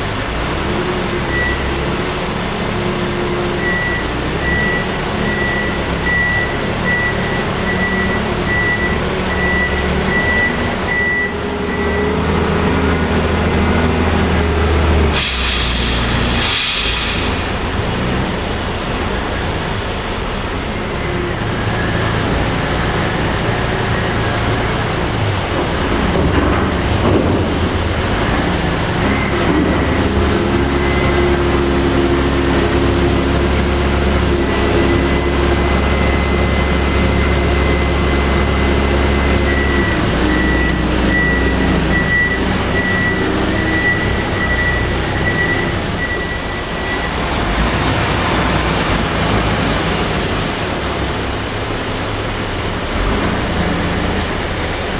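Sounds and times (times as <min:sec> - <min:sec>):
heavy diesel engine running: 0:00.0 - 0:54.9
high warning beep: 0:03.6 - 0:12.2, 0:39.3 - 0:47.2
air brake hiss: 0:15.1 - 0:17.6, 0:49.6 - 0:50.6.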